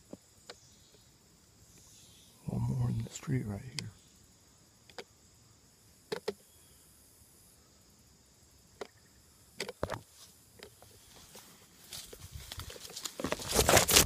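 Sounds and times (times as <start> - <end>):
dry leaves and twigs crunching: 9.8 - 14.0.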